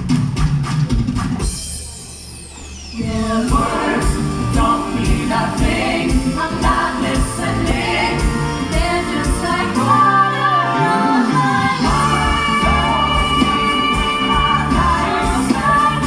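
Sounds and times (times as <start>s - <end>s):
pop singing over drum beat: 3.4s - 10.2s, 11.2s - 16.0s.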